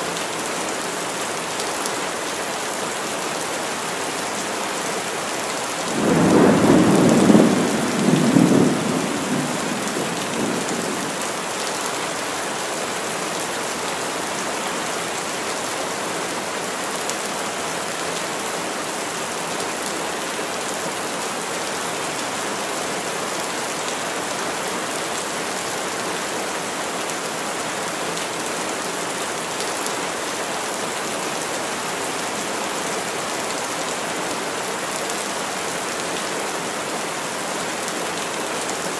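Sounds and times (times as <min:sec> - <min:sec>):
heavy rain through trees: 0:00.0 - 0:38.9
thunder rumble: 0:06.0 - 0:11.1.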